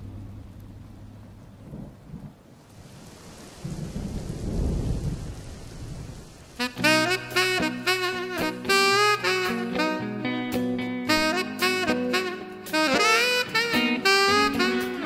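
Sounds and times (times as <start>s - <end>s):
low steady hum: 0.0s - 3.2s
thunder rumbling: 0.0s - 6.7s
rain falling: 0.0s - 7.6s.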